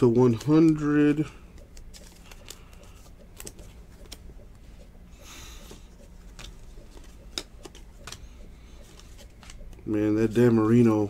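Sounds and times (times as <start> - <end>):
cards rustling: 0.1 - 4.4, 5.6 - 9.8
cards clicking: 1.5 - 4.2, 6.3 - 9.8.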